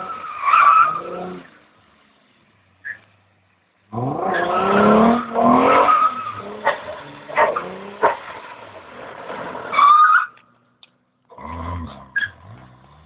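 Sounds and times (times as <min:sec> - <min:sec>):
tyres skidding on wet asphalt: 0:00.0 - 0:10.7
car engine revving hard: 0:03.9 - 0:08.1
tyre squeal: 0:09.6 - 0:10.4, 0:11.8 - 0:12.4.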